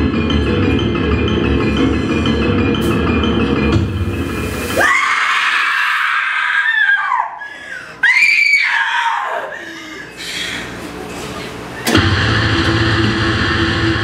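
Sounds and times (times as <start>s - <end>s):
music: 0.0s - 5.3s, 11.8s - 14.0s
person screaming: 4.8s - 7.4s.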